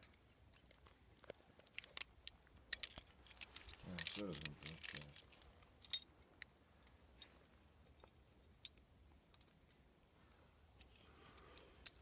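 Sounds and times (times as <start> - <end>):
metallic clicks of climbing gear: 0.0 - 6.5, 10.8 - 12.0.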